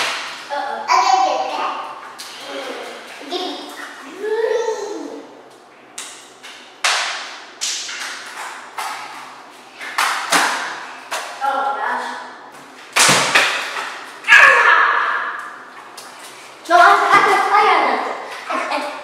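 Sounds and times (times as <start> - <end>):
water balloons splatting: 13.0 - 14.0
children shouting: 14.3 - 15.4.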